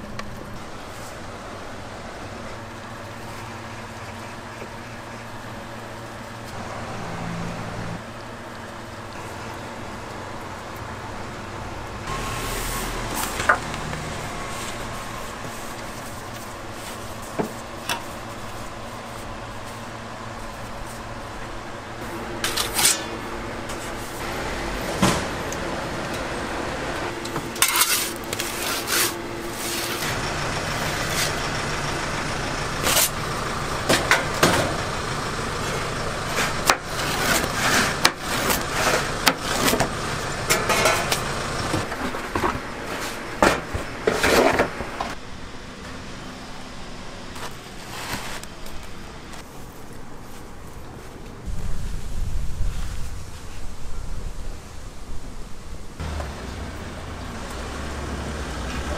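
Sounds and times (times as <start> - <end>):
machine hum: 0.0 - 47.8, 53.9 - 58.9
clatter of metal utensils: 27.5 - 29.1, 40.5 - 41.2.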